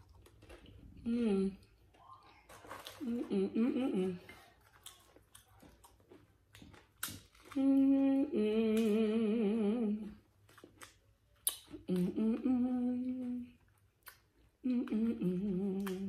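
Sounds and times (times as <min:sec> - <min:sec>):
tortilla chips crunching: 0:00.0 - 0:01.1, 0:04.2 - 0:08.0, 0:10.1 - 0:11.9
woman humming: 0:01.0 - 0:01.7, 0:03.0 - 0:04.4, 0:07.6 - 0:10.2, 0:11.8 - 0:13.6, 0:14.6 - 0:16.0.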